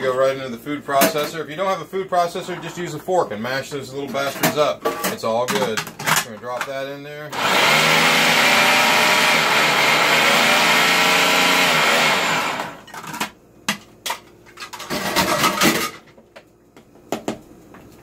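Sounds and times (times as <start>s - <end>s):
food processor motor running: 7.3s - 12.9s.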